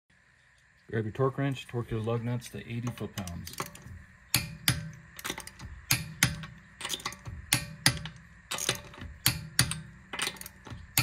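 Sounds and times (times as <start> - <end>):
torque wrench clicks: 2.8 - 11.0.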